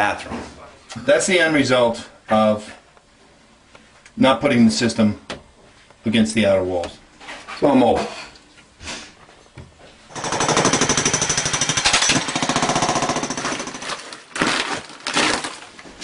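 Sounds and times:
jackhammer blows: 0:10.1 - 0:14.0.

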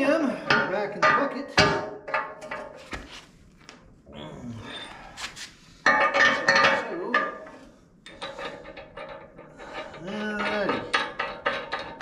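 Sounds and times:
steel pins clinking and scraping: 0:05.8 - 0:12.0.

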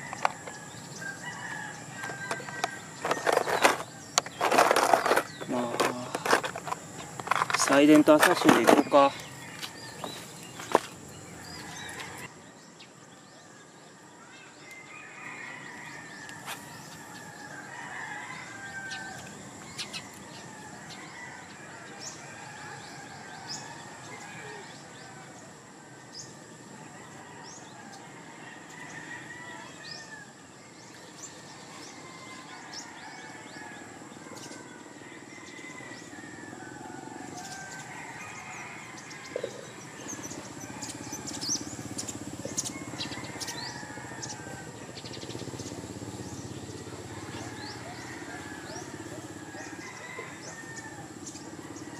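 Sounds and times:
roosters crowing: 0:00.0 - 0:12.3, 0:14.6 - 0:51.9
birds chirping: 0:00.0 - 0:25.4, 0:27.0 - 0:51.9.

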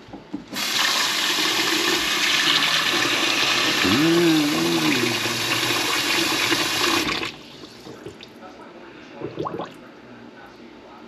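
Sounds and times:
faucet running water into sink: 0:00.6 - 0:03.8, 0:04.5 - 0:07.8.

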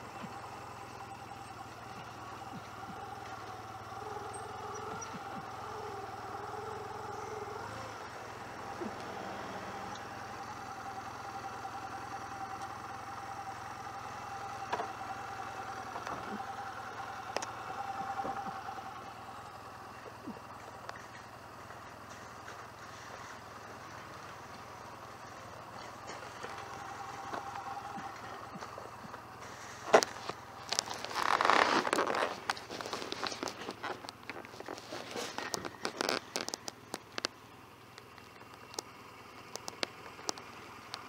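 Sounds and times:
motorcycle engine idling: 0:00.0 - 0:41.0
sharp clicks and knocks: 0:29.9 - 0:38.9, 0:39.5 - 0:41.0.

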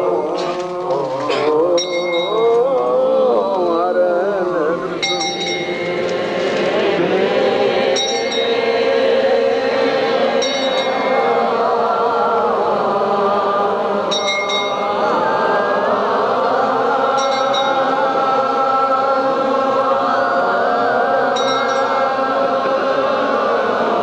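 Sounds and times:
voices chanting a hymn: 0:00.0 - 0:24.0
high metallic jingle: 0:01.8 - 0:02.6, 0:05.0 - 0:06.0, 0:08.0 - 0:08.7, 0:21.4 - 0:22.2.

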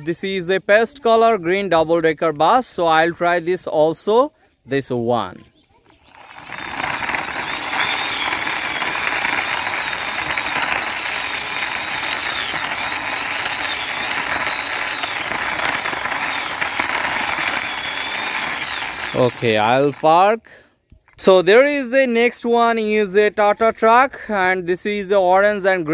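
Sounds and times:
toy wheels rattling on concrete: 0:06.0 - 0:20.3.

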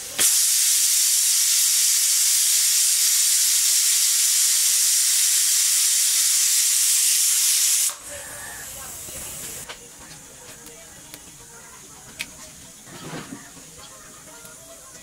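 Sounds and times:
pressure cooker steam hiss: 0:00.0 - 0:09.7.

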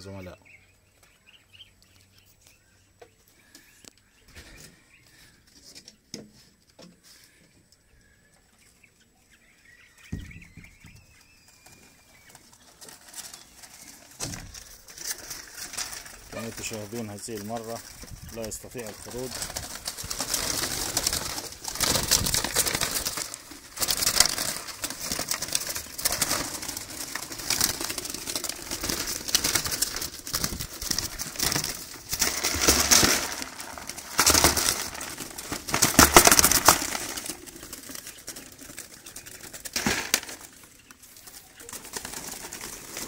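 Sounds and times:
dove flapping wings: 0:11.4 - 0:43.0
wire mesh rattling: 0:11.6 - 0:40.6.

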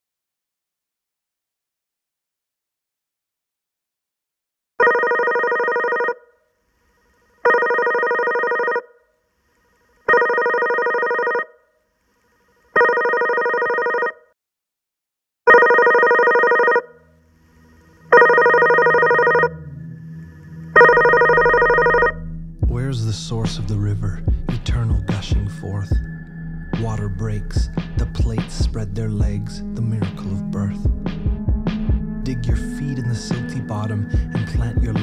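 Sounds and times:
electronic phone ringtone: 0:04.8 - 0:06.4, 0:07.4 - 0:09.1, 0:10.1 - 0:11.7, 0:12.8 - 0:14.3, 0:15.5 - 0:17.2, 0:18.1 - 0:19.7, 0:20.7 - 0:22.2
faint low drone: 0:18.9 - 0:35.0.

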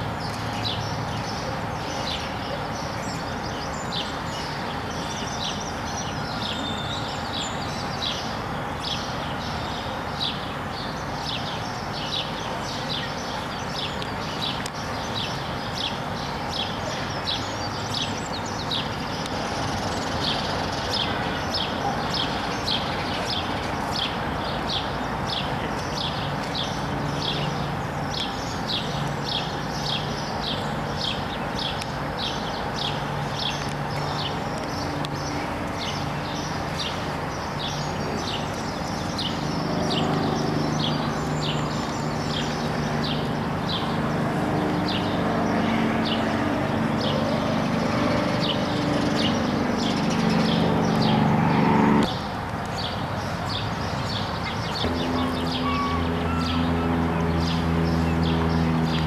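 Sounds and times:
low hum: 0:54.8 - 0:59.0.

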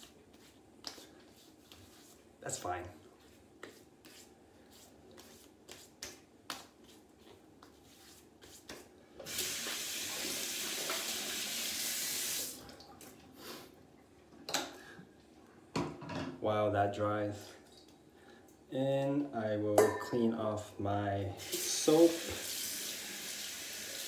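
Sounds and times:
sink tap running: 0:09.2 - 0:12.6, 0:21.4 - 0:24.0.

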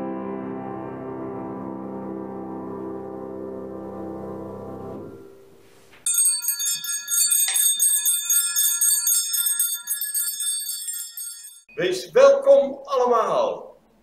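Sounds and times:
music: 0:00.0 - 0:05.9
hand bells shaken: 0:06.1 - 0:11.7.

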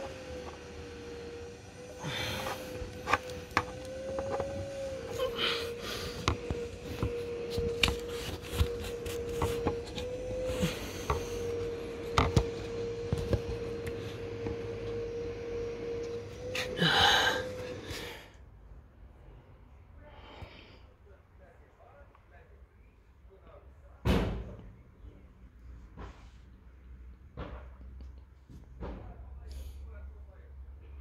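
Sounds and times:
steady hum: 0:00.0 - 0:18.9
hand rubbing against plastic trim: 0:02.4 - 0:14.8
scrape on plastic: 0:06.1 - 0:11.5.

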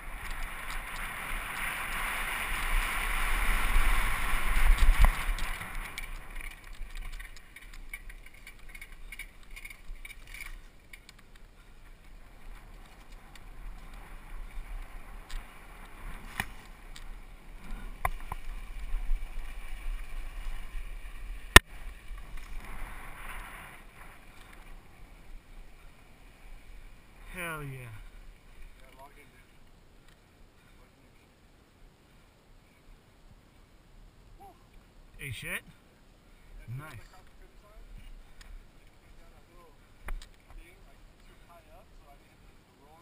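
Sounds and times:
bike rattles and clicks: 0:00.0 - 0:26.0
mountain bike rumbling on dirt: 0:00.0 - 0:28.8.

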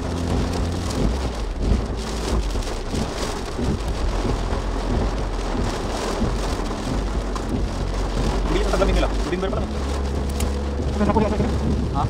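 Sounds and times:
heavy rain on car roof: 0:00.0 - 0:12.0
low rumble: 0:00.0 - 0:12.0.

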